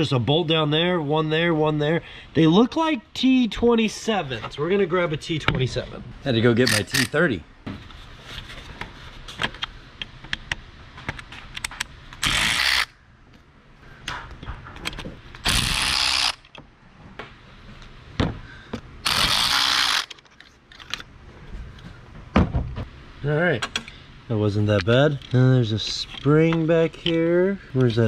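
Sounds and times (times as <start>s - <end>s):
power tool running: 15.4s - 16.4s, 19.0s - 20.1s.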